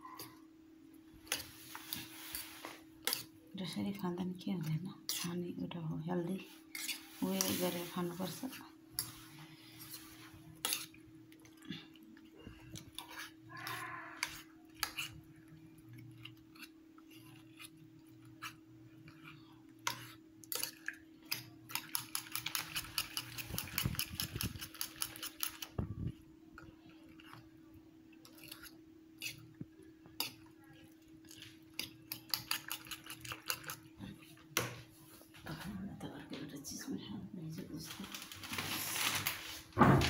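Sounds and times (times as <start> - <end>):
fast whisking in bowl: 6.7 - 9.1, 19.9 - 25.8, 31.4 - 34.0.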